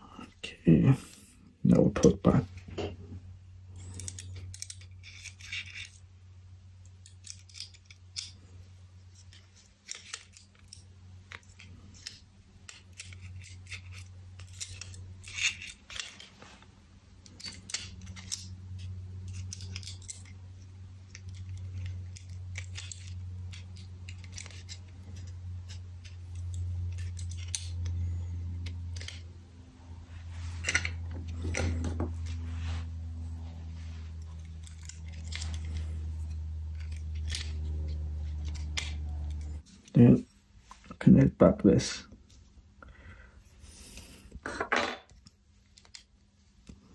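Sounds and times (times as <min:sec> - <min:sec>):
small parts clicking: 0:03.8 - 0:06.0, 0:06.8 - 0:16.4, 0:17.2 - 0:29.3, 0:34.2 - 0:39.6
low hum: 0:10.2 - 0:40.9.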